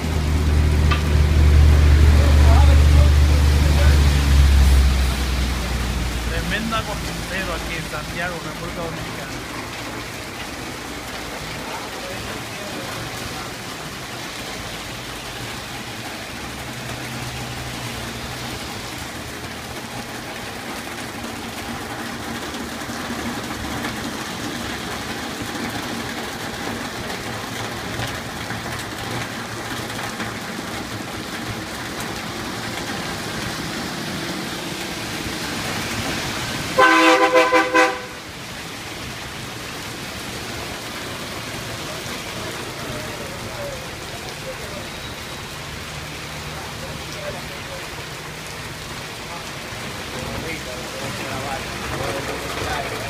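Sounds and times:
heavy rain hissing: 0.0 - 53.0
vehicles driving through water: 0.0 - 53.0
vehicle horn honking: 36.8 - 38.2.

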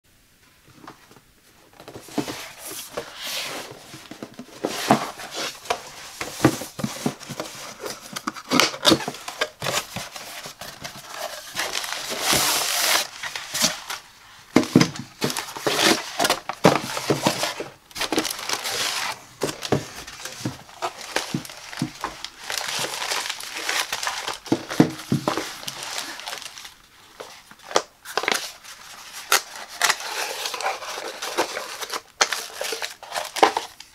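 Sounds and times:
items tapping and rustling: 0.7 - 33.9
plastic crinkling: 1.7 - 33.9.

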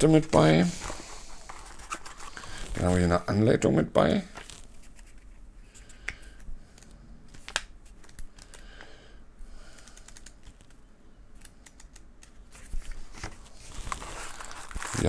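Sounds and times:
paper rustling: 0.2 - 3.0, 12.5 - 15.0.

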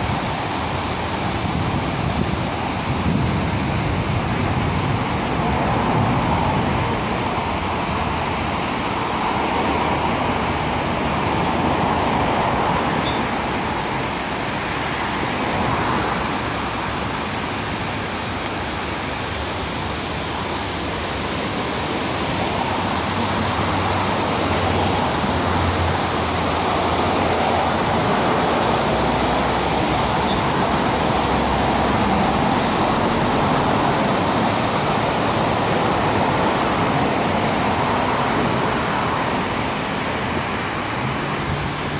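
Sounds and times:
river rushing over weir: 0.0 - 41.9
road traffic passing: 0.0 - 41.9
high chirping: 11.6 - 14.4, 29.1 - 31.8.

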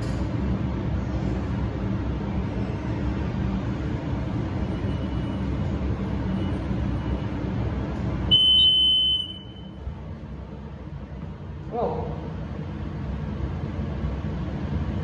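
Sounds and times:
elevator low rumble: 0.0 - 15.0
high electronic beep: 8.3 - 9.7.

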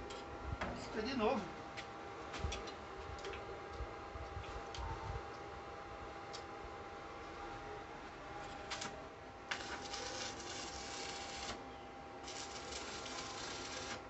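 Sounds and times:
welding arc crackling and sizzling: 8.5 - 11.6, 12.2 - 14.0.

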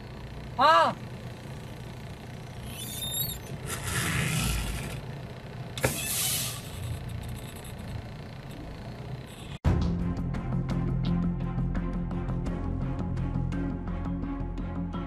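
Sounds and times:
truck engine and road rumble: 0.0 - 9.6.

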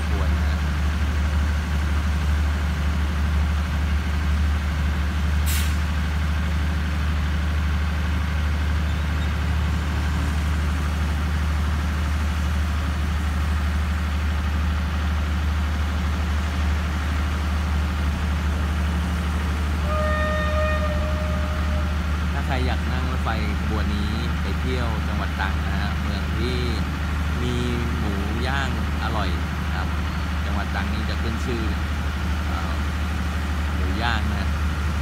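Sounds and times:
diesel train engines idling: 0.0 - 35.0
air brake hiss: 5.4 - 5.9.

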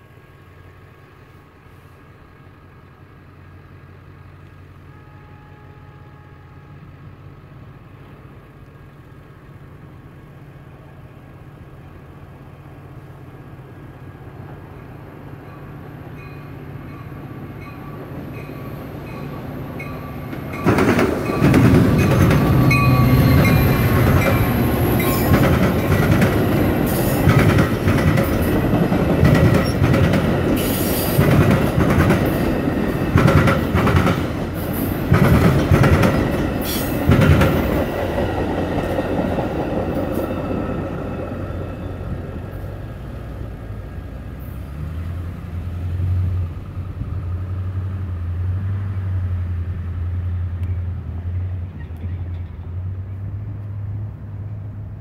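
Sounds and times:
commuter train passing: 0.0 - 55.0
wheels clattering over crossing: 17.7 - 42.5.

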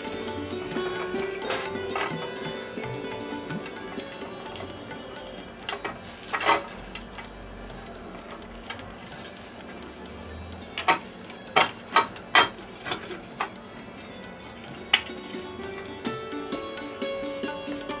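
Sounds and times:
metal cover plate clinking: 0.0 - 9.4.

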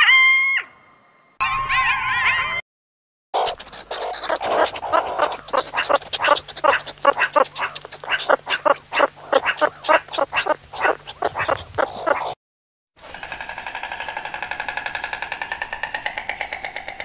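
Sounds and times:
animal giving short sharp calls: 3.4 - 12.4.

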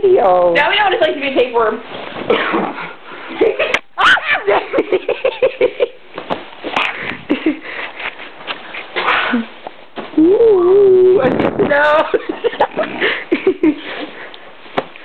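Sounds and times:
people laughing: 3.4 - 6.0.

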